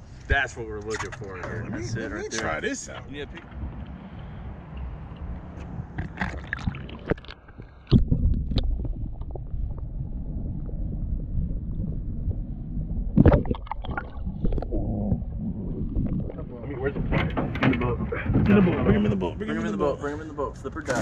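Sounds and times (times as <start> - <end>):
underwater rumble and gurgle: 2.9 - 19.5
water splashing: 3.4 - 19.1.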